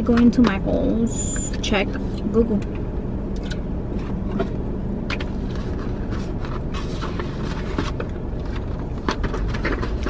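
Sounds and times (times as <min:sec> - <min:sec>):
low rumble inside a car: 0:00.0 - 0:10.0
paper rustling and crinkling: 0:05.2 - 0:10.0.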